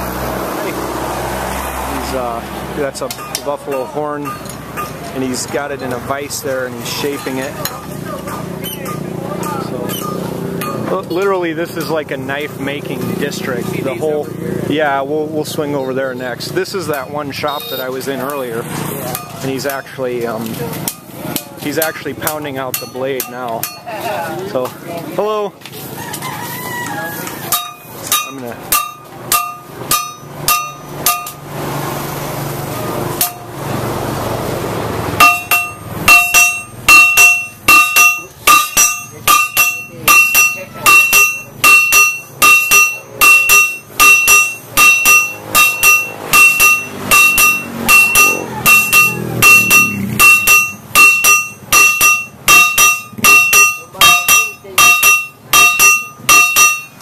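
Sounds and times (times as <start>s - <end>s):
hammer striking metal on anvil: 2.9s - 6.2s, 8.6s - 13.0s, 19.1s - 19.9s, 20.8s - 23.9s, 27.5s - 31.5s, 33.2s - 33.6s, 35.2s - 57.0s.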